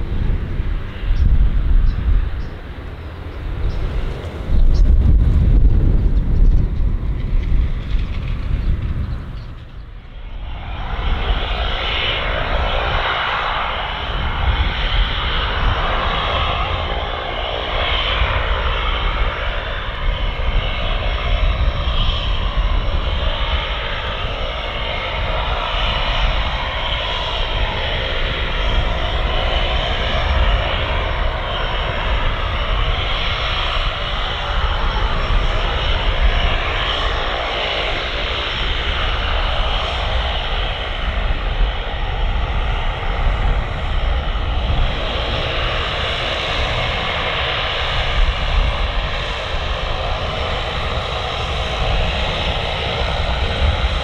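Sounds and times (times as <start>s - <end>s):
turboprop engine running: 0.0s - 54.0s.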